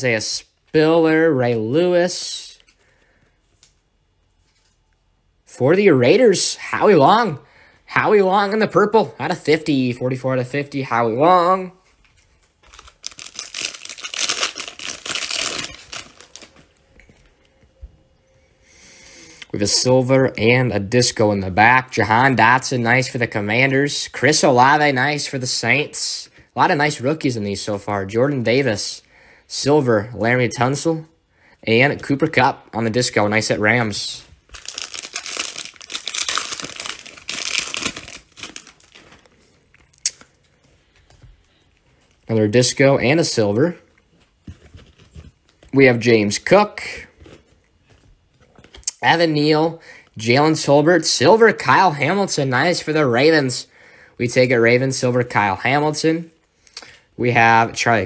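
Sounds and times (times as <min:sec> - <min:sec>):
foil wrapper tearing and crinkling: 0:12.6 - 0:16.7, 0:34.5 - 0:39.3.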